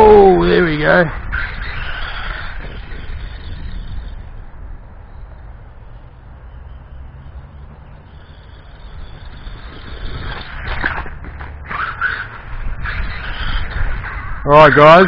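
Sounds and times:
rc truck electric motor: 0:00.6 - 0:04.5, 0:08.0 - 0:15.0.

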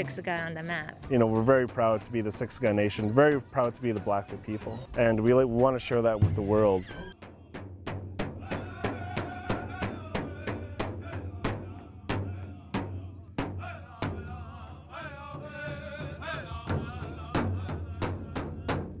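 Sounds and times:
big drum beating: 0:00.0 - 0:14.4
high wavering voices singing: 0:01.1 - 0:07.4, 0:08.4 - 0:12.6.

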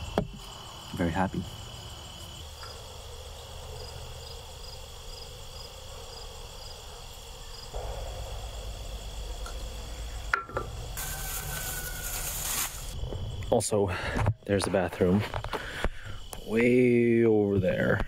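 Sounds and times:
crickets chirping: 0:00.0 - 0:18.0
low rumble: 0:07.8 - 0:11.0.

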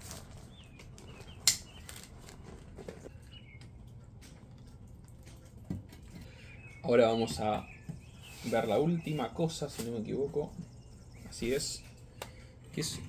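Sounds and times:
faint bird chirps: 0:06.2 - 0:13.0.

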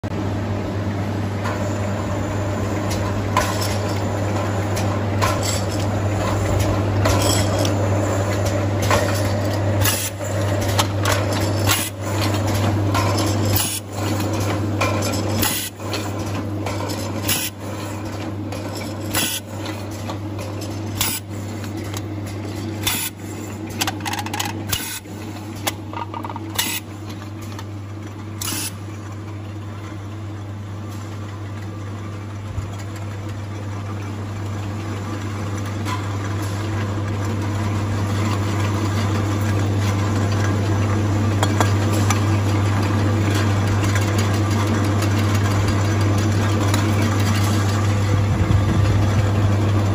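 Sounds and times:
low machine hum: 0:00.0 - 0:49.9.

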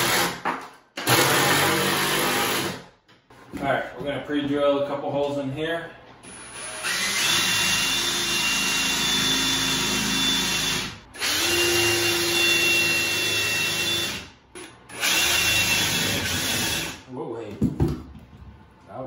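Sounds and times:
cordless drill drilling wood: 0:01.0 - 0:02.8, 0:06.2 - 0:14.3, 0:14.9 - 0:17.0.

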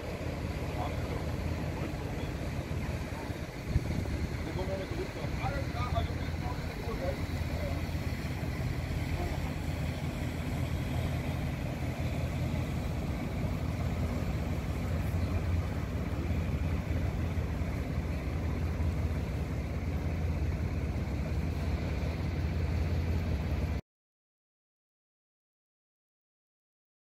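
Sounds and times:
ferry engine droning: 0:00.0 - 0:23.8
wind: 0:00.0 - 0:23.8.

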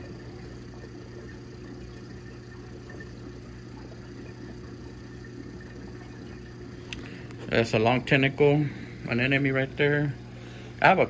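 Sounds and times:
aquarium pump humming: 0:00.0 - 0:11.0.

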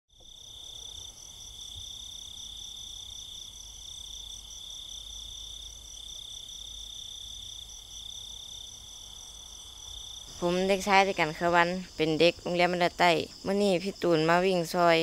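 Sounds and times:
crickets chirping: 0:00.1 - 0:15.0.

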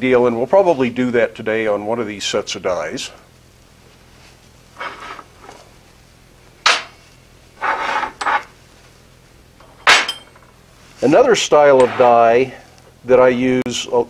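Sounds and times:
steel blocks clinking on metal bench: 0:07.6 - 0:08.5, 0:09.6 - 0:10.6.

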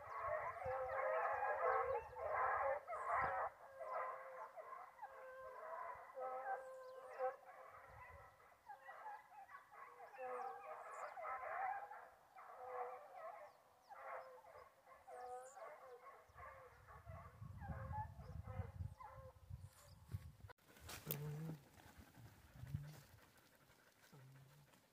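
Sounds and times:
distant hounds baying: 0:00.0 - 0:19.9.

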